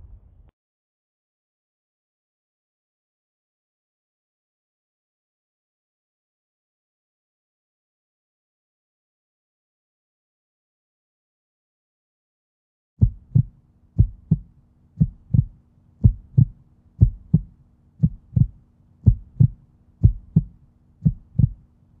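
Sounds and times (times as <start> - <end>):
heartbeat thumps: 13.0 - 21.6
faint steady hum: 13.0 - 22.0.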